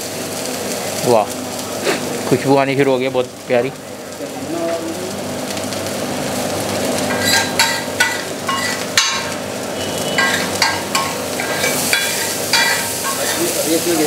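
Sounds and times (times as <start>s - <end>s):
food sizzling on a griddle: 0.0s - 14.0s
spatula clanking on a griddle: 7.0s - 9.4s, 10.1s - 13.6s.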